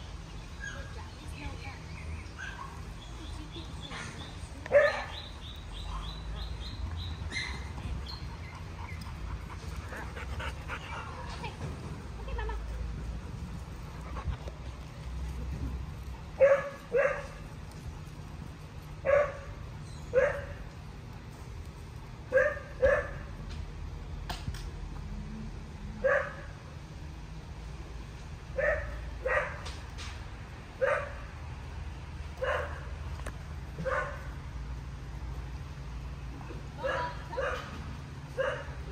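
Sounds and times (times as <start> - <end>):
dog barking: 4.7 - 5.2, 16.4 - 17.4, 19.1 - 19.5, 20.2 - 20.6, 22.3 - 23.2, 26.0 - 26.5, 28.6 - 29.6, 30.8 - 31.2, 32.4 - 32.8, 33.8 - 34.2, 36.8 - 37.7, 38.4 - 38.8.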